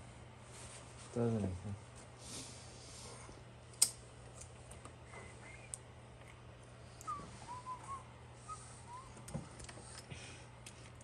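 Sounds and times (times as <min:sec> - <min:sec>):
sharp click: 0:03.7 - 0:04.0.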